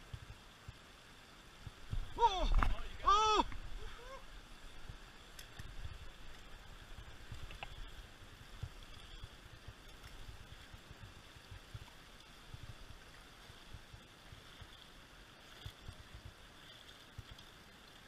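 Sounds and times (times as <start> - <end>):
creek water rushing: 0.0 - 18.0.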